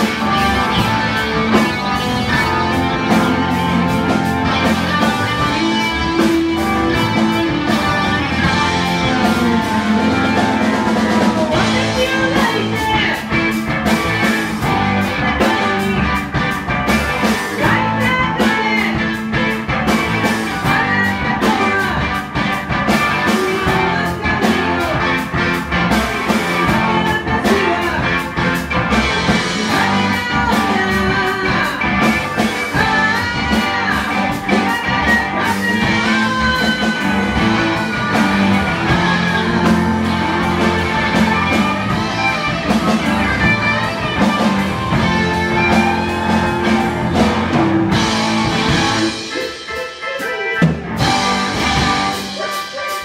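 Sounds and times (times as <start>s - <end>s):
electric bass: 0.0s - 49.6s, 50.6s - 52.4s
drum kit: 0.0s - 53.0s
electric guitar: 0.0s - 53.0s
woman singing: 2.0s - 14.7s, 17.4s - 19.5s, 20.1s - 22.3s, 23.0s - 25.2s, 26.5s - 28.2s, 29.4s - 42.7s.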